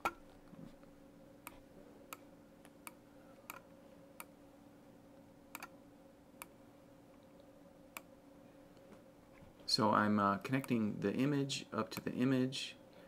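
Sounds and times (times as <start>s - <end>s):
faint steady hum: 0.0s - 13.0s
computer mouse clicks: 5.5s - 5.7s.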